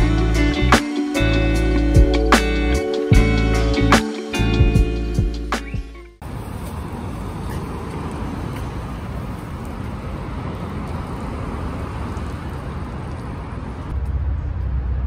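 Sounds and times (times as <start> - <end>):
road noise: 0.0 - 15.0
passing cars: 6.2 - 15.0.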